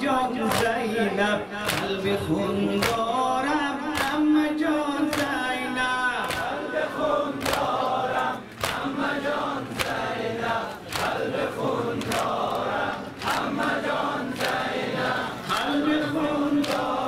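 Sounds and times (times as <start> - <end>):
people beating chests in unison: 1.6 - 2.0, 2.8 - 3.2, 3.9 - 4.3, 5.0 - 5.4, 6.2 - 17.0
voices chanting: 6.2 - 17.0.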